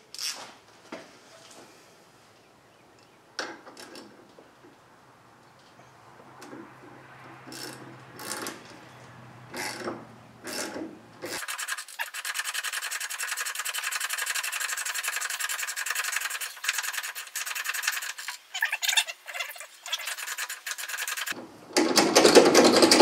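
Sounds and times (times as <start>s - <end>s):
fast rasping rub: 11.3s - 21.4s.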